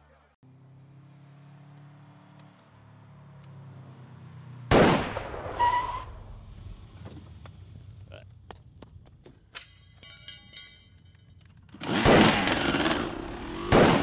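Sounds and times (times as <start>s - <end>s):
handgun shot: 13.7s - 14.0s.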